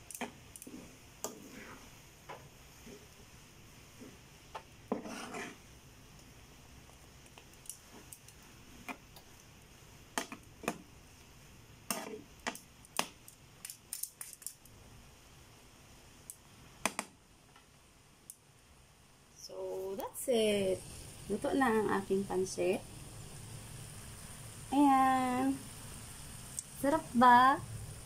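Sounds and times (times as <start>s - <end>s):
utensils clacking and scraping in pan: 0.0s - 3.2s, 4.9s - 5.6s, 11.9s - 12.6s.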